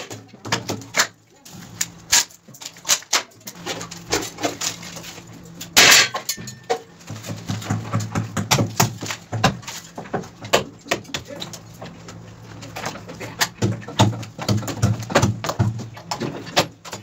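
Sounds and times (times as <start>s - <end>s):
sharp knocks and clinks: 5.8s - 7.0s.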